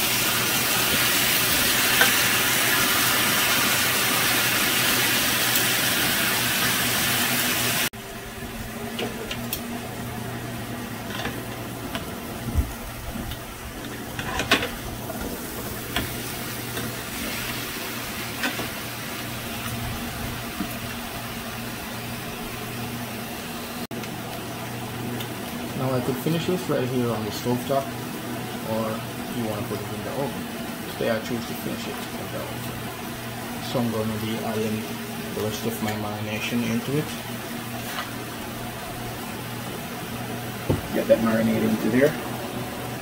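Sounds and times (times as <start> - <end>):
chicken sizzling in grill pan: 0.0 - 42.2.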